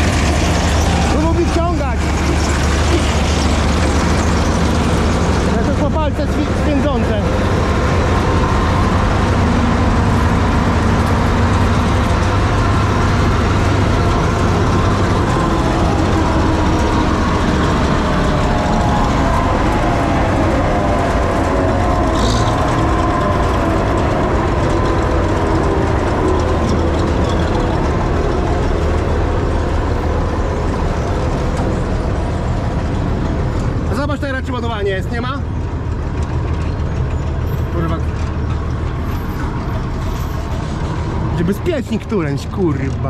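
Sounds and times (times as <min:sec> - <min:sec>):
diesel engine running: 0:00.0 - 0:43.0.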